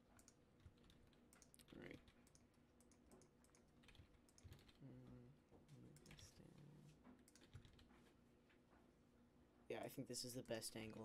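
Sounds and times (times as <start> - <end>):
faint keyboard keystrokes: 0.1 - 4.8, 5.9 - 6.4, 7.0 - 8.2.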